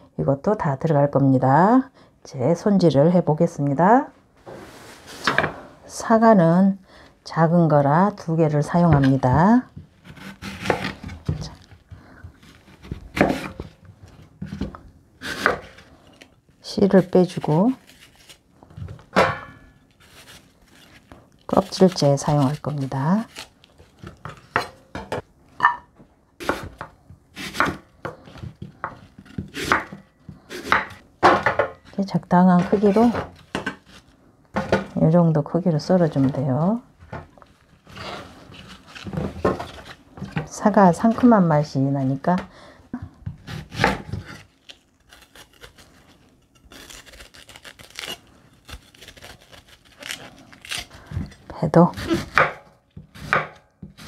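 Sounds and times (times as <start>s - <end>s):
knife slicing apple on wooden board: 10.0s - 11.6s, 12.3s - 13.8s, 14.4s - 15.9s, 26.4s - 31.6s, 51.9s - 54.0s
knife cutting crisp pear: 14.5s - 15.9s, 16.8s - 18.4s, 19.4s - 24.8s, 26.4s - 31.0s, 43.4s - 54.0s.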